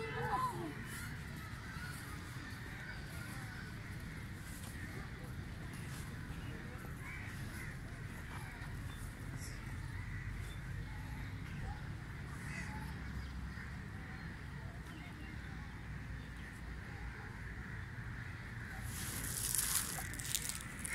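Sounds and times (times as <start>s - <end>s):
birds calling: 17.4s - 20.9s.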